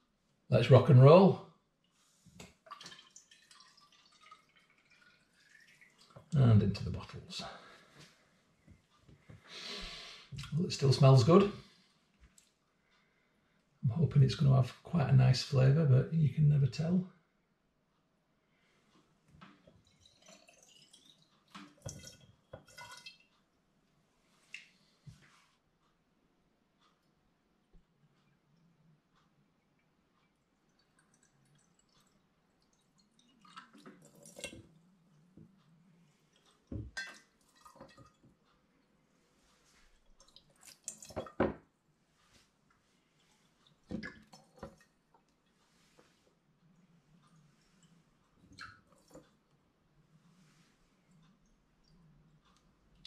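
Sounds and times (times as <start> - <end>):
dripping and trickling: 2.3 - 8.2, 19.4 - 23.5, 24.4 - 24.9, 29.7 - 41.7, 42.3 - 49.5
wine trickling into a bottle: 2.7 - 7.7, 19.8 - 23.2, 33.0 - 34.7.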